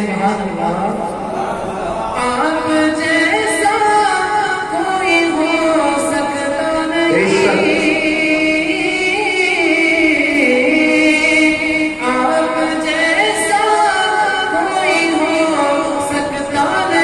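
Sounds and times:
man singing into microphone: 6.9s - 9.2s.

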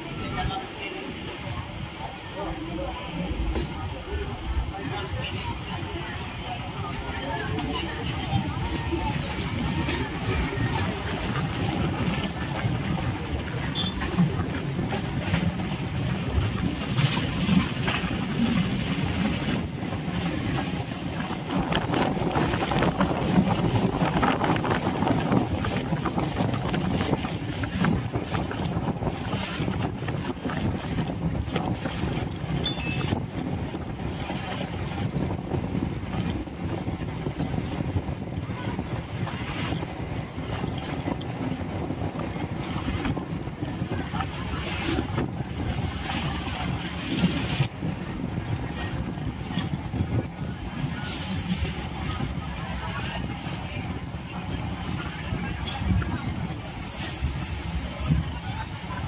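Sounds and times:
train wheel-on-rail rumble: 0.0s - 59.0s
wind buffeting microphone: 0.0s - 59.0s
high squeal: 56.2s - 58.4s.

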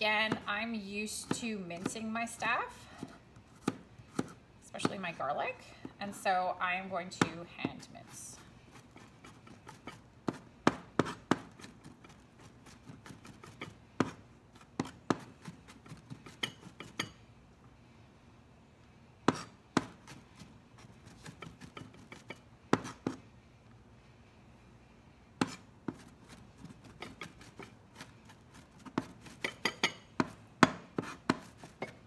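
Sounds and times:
knife chopping on cutting board: 9.0s - 17.0s, 19.3s - 20.2s, 21.2s - 23.2s, 26.8s - 32.0s.

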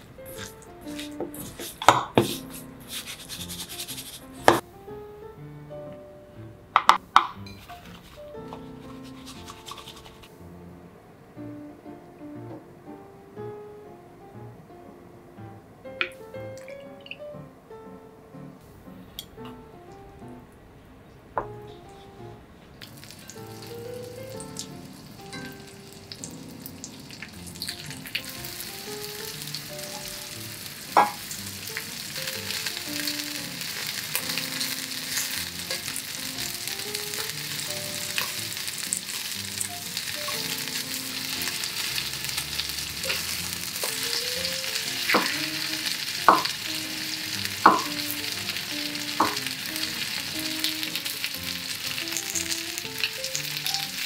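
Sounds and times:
chicken sizzling in a skillet: 0.3s - 4.6s, 22.8s - 54.0s.

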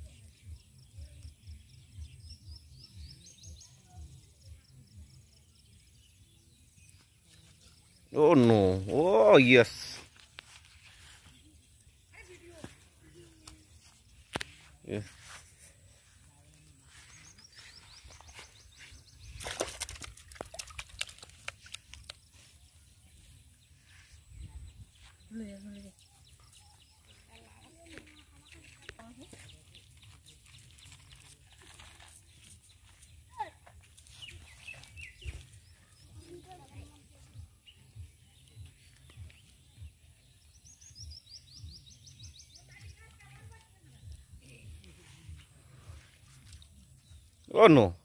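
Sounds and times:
songbird singing: 0.0s - 48.0s
fish thrashing in bucket of water: 19.1s - 22.2s.

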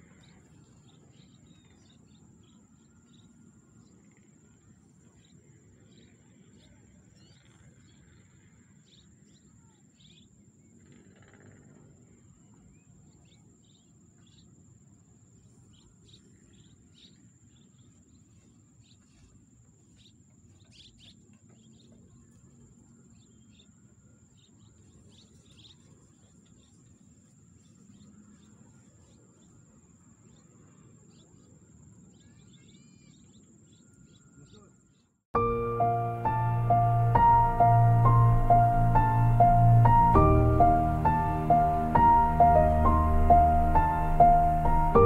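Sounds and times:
bird chirps: 32.2s - 45.0s
low background rumble: 35.4s - 45.0s.

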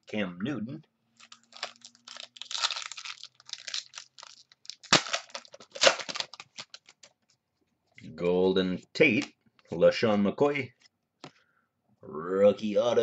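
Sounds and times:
foil wrapper crinkling and tearing: 1.2s - 7.1s.

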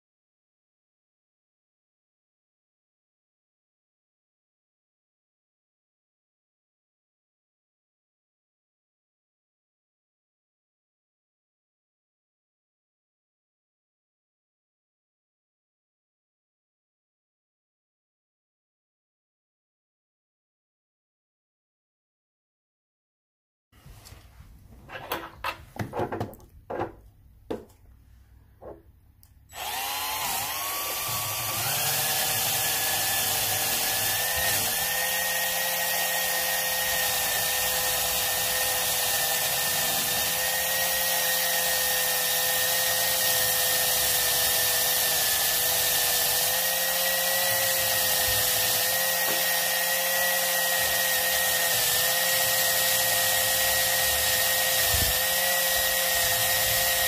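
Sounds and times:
electric drill whine: 29.5s - 57.0s.

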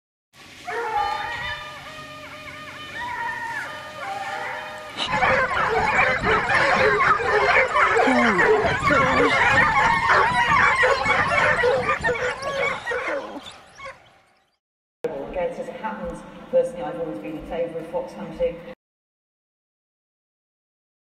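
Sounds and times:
hounds baying and yelping: 0.6s - 14.3s.

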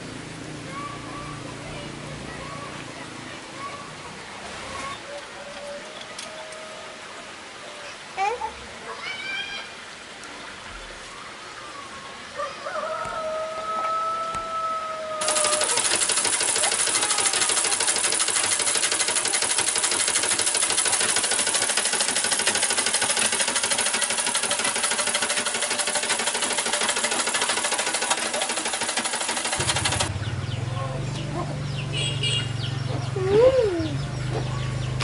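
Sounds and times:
treadle sewing machine clatter: 15.2s - 30.1s.

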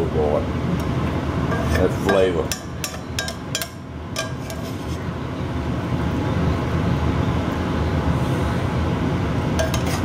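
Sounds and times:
metal spatula scraping a pan: 1.5s - 2.3s, 4.2s - 5.0s, 9.6s - 10.0s.

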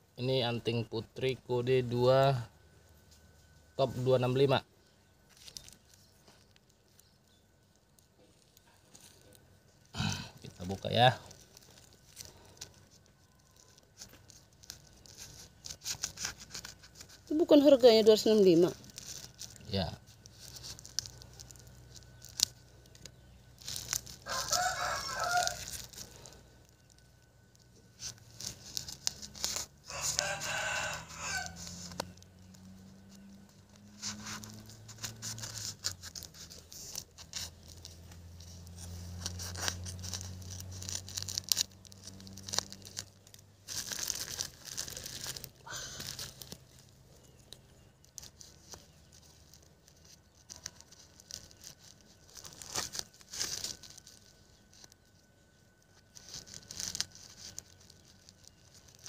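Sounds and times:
plastic crinkling and tearing: 3.1s - 59.0s
rooster crowing: 24.2s - 25.9s, 29.8s - 32.1s.

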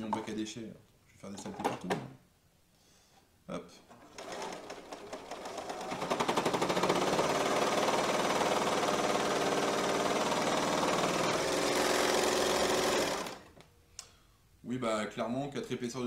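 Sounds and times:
overlocker sewing: 3.9s - 13.6s.

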